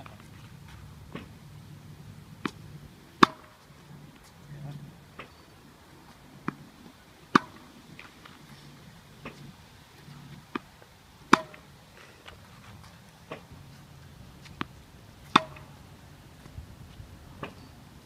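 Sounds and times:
tennis ball bouncing: 0.0 - 1.4, 2.3 - 4.3, 5.2 - 5.4, 6.4 - 6.7, 7.3 - 8.4, 9.2 - 13.8, 14.4 - 15.8, 17.4 - 17.7
racquet hitting tennis ball: 2.4 - 3.6, 7.3 - 8.4, 11.3 - 11.7, 14.4 - 15.8.

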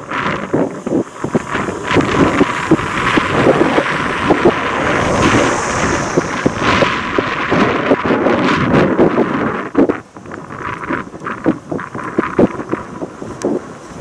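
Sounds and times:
wind buffeting microphone: 0.0 - 14.0
steam locomotive approaching: 1.2 - 7.9.

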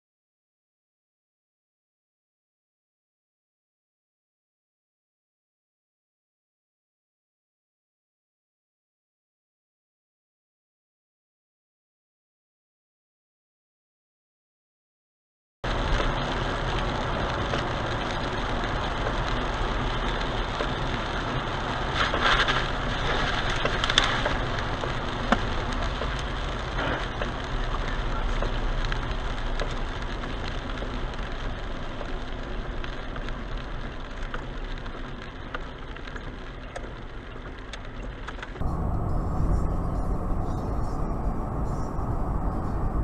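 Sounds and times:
car road noise on wet road: 15.6 - 43.0
rain on windshield: 15.6 - 43.0.

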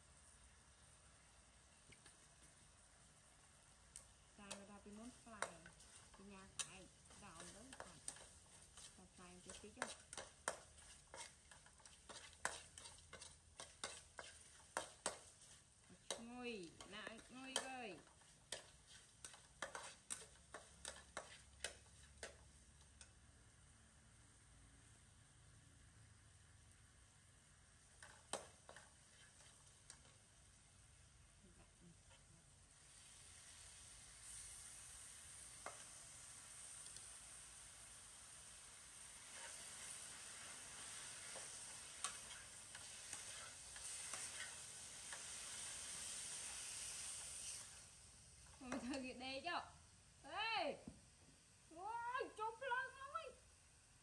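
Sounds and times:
rice sizzling in a pan: 0.0 - 54.0
metal spatula tapping wok: 4.5 - 15.3, 16.0 - 22.4, 40.8 - 45.3.

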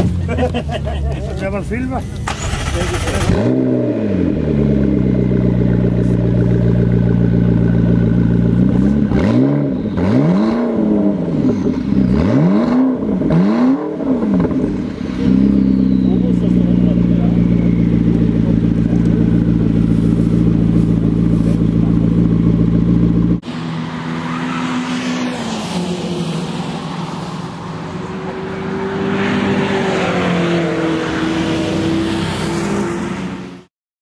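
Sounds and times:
race car passing with gear changes: 0.0 - 33.7
sports car engine idling: 4.2 - 9.1, 14.6 - 23.4.

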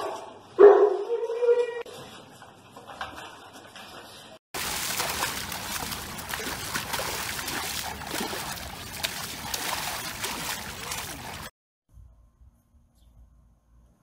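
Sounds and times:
dog splashing through water: 4.6 - 11.5.

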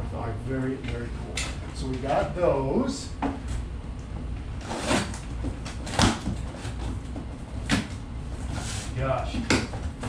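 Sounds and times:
steady low rumble: 0.0 - 4.6.

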